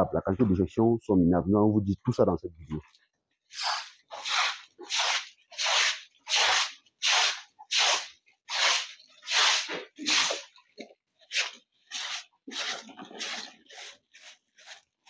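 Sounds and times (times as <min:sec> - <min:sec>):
stiff broom sweeping concrete: 0:03.5 - 0:10.5, 0:11.3 - 0:15.0.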